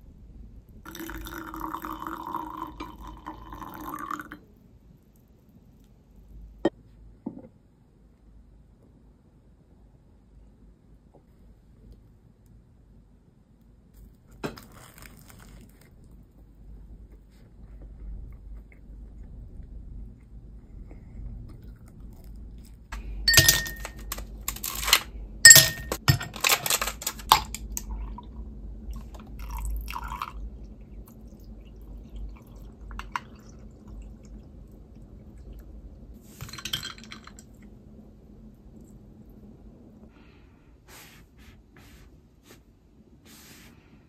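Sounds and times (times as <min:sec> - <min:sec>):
metal straw clinking against ice: 0:23.3 - 0:24.8, 0:25.5 - 0:26.0
ice cubes clinking against glass: 0:23.3 - 0:27.5.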